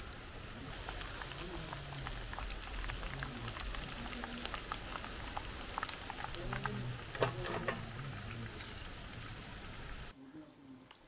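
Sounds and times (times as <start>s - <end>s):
oil sizzling and crackling: 0.0s - 10.1s.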